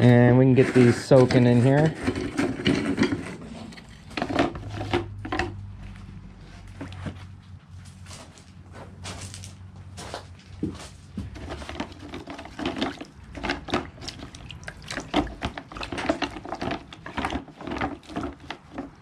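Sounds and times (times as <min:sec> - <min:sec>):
water splashing in bucket: 0:11.5 - 0:19.0.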